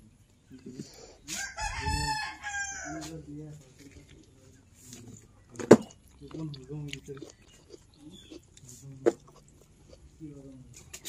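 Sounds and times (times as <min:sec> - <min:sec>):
rooster crowing: 0:01.3 - 0:03.2.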